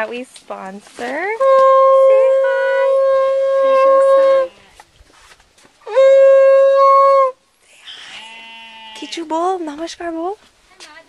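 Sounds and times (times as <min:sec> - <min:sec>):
horn-like blown note: 0:01.3 - 0:04.7, 0:05.8 - 0:07.4.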